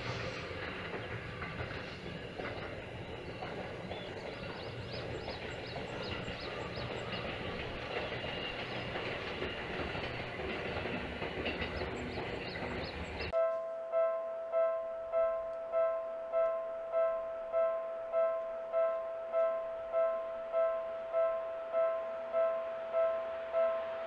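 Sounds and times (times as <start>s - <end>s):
train wheels rumbling on rail: 0.0s - 13.4s.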